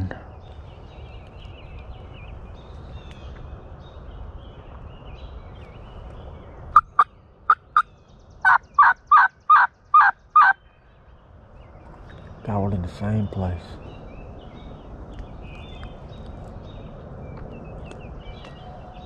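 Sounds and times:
low steady background noise: 0.0s - 19.0s
songbird chirps: 0.0s - 19.0s
wild turkey yelping: 6.8s - 10.6s.

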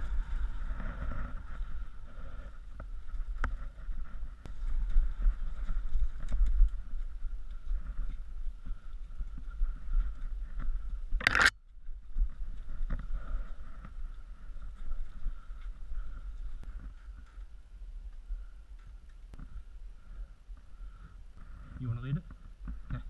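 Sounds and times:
bike rolling on dirt trail: 0.0s - 17.7s
bike clicks and rattles: 10.0s - 11.6s.

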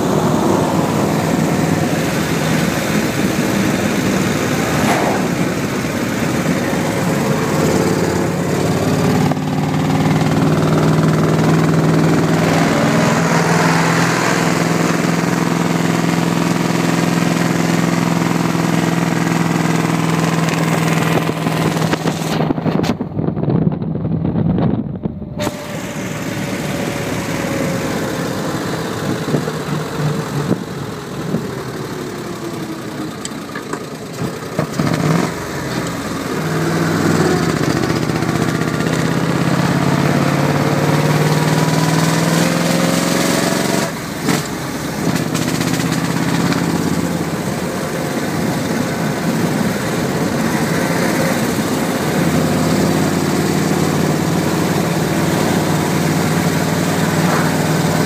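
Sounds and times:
engine running on the move: 0.0s - 58.0s
wind and road noise: 0.0s - 58.0s.

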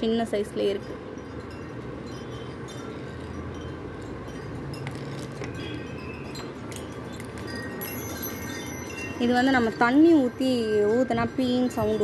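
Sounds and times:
faint clinks and taps: 0.8s - 8.3s.

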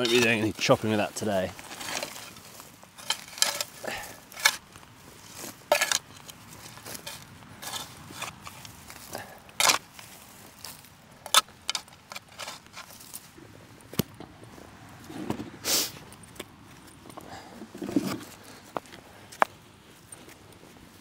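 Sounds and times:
metal spade scraping ash and stones: 0.0s - 13.4s, 17.6s - 18.6s.

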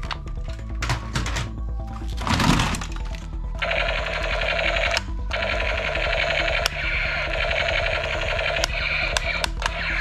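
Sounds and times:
toy gun buzzing rattle: 3.6s - 10.0s.

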